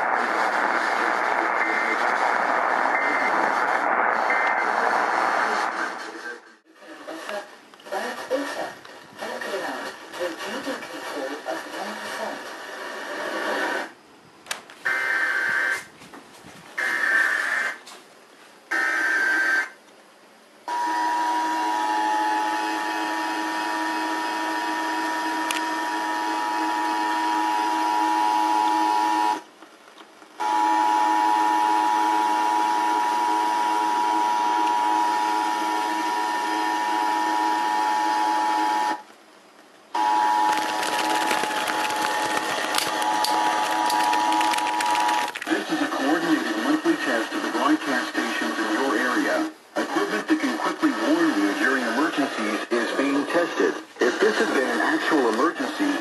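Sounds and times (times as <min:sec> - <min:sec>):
harsh digital data bursts: 0:40.4 - 0:45.7.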